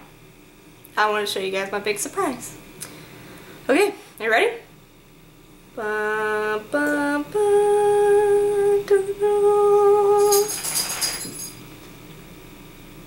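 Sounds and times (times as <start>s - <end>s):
shimmering rattly sound: 10.2s - 11.6s.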